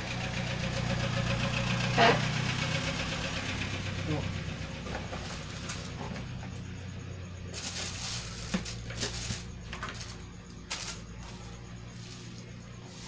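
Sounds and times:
steady low hum: 0:04.0 - 0:13.0.

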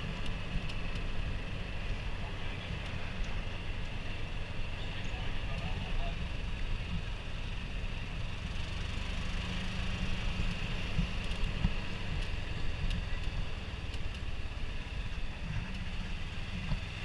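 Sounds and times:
slow-moving open vehicle running: 0:00.0 - 0:17.0
light ticks: 0:00.2 - 0:01.2, 0:10.9 - 0:14.3
wind rumble on microphone: 0:09.8 - 0:17.0.

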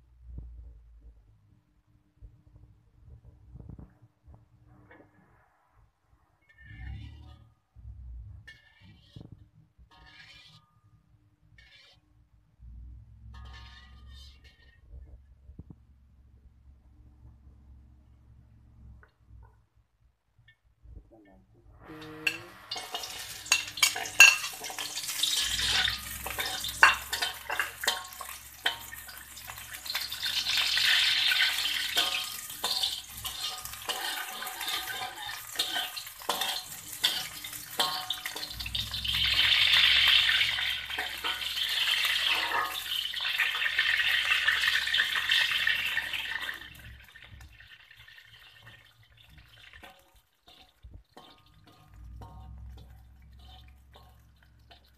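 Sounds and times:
metal spatula knocking pan: 0:13.3 - 0:14.7, 0:22.2 - 0:47.6, 0:48.4 - 0:54.9
garlic sizzling in oil: 0:21.9 - 0:54.9.

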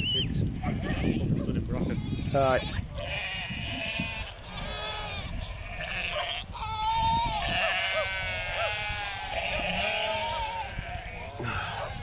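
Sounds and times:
sheep bleating: 0:00.8 - 0:12.0.

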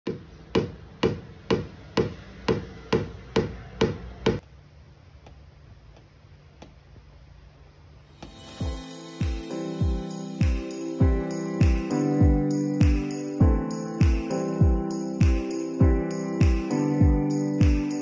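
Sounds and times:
music: 0:08.2 - 0:18.0.

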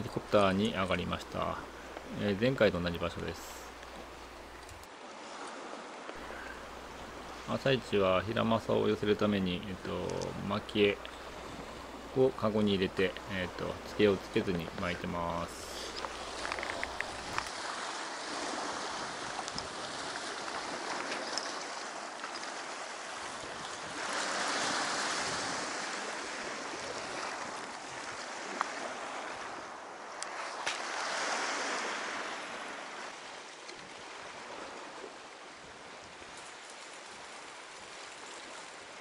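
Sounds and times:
surf washing against rocks: 0:00.0 - 0:39.0
sharp clicks: 0:04.6 - 0:04.9.

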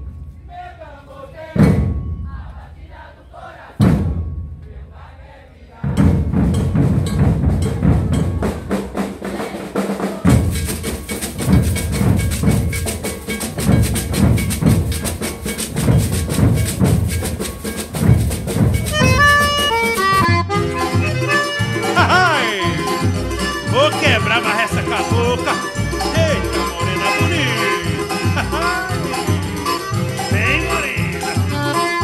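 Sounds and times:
bass drums: 0:01.6 - 0:02.5, 0:03.8 - 0:04.6, 0:05.9 - 0:32.0
fast drum stick strokes: 0:06.0 - 0:20.3
accordion music: 0:17.3 - 0:32.0.

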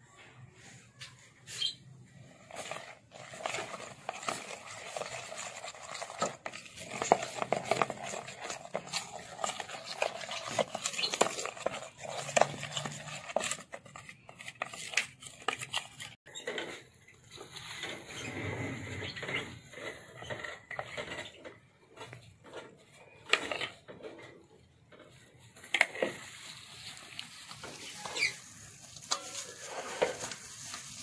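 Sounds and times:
spoon stirring thick paste: 0:01.6 - 0:18.3.

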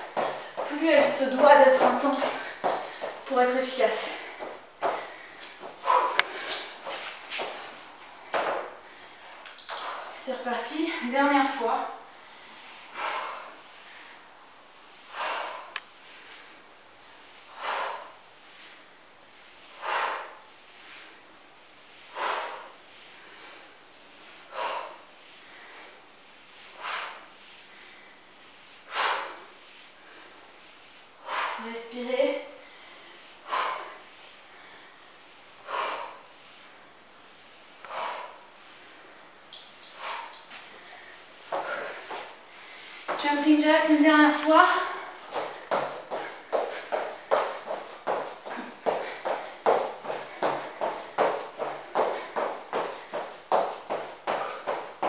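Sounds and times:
high electronic timer beep: 0:02.1 - 0:03.2, 0:09.6 - 0:10.2, 0:39.5 - 0:40.7, 0:44.4 - 0:45.0.

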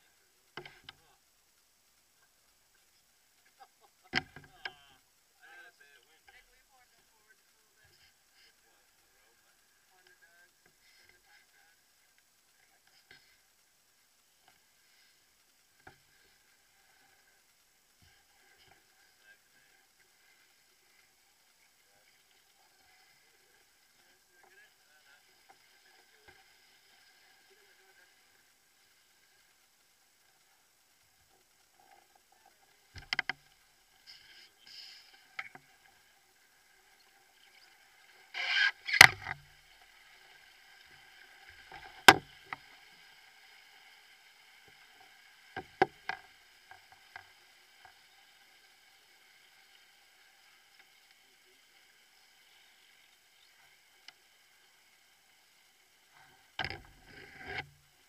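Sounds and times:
paddles knocking against canoe: 0:04.1 - 0:04.8, 0:32.9 - 0:33.5, 0:38.4 - 0:39.6, 0:41.6 - 0:42.7, 0:56.6 - 0:57.7.

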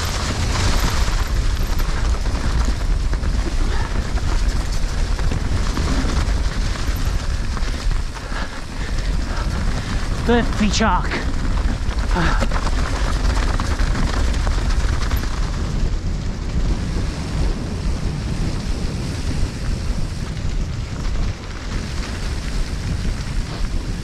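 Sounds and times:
bike tyres rumbling on dirt: 0:00.0 - 0:24.0
wind buffeting microphone: 0:00.0 - 0:24.0.

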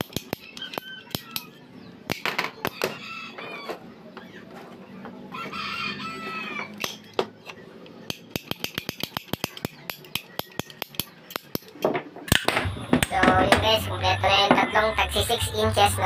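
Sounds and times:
ratcheting pipe cutter clicking: 0:08.1 - 0:12.4.

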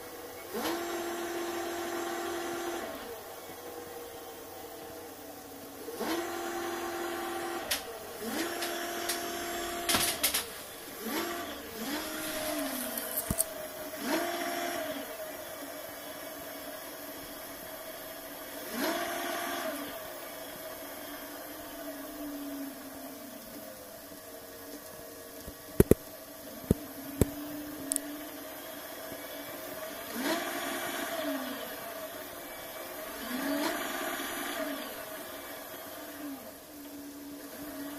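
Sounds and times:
e-bike hub motor whining: 0:00.0 - 0:37.9
sharp clicks: 0:24.8 - 0:26.1.

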